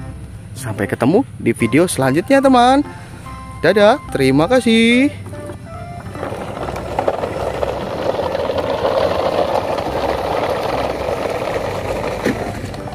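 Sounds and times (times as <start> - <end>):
plastic toy trucks rolling on gravel: 4.8 - 12.9
stones clicking: 5.3 - 12.9.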